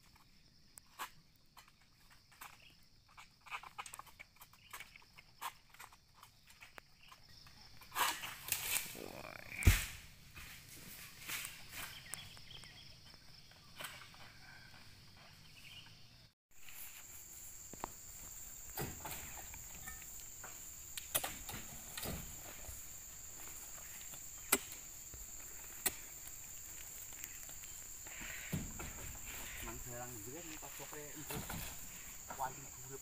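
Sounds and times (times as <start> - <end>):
high insect drone: 0.1 - 33.0
fruit bunches thudding on truck: 28.2 - 29.6, 31.1 - 32.5.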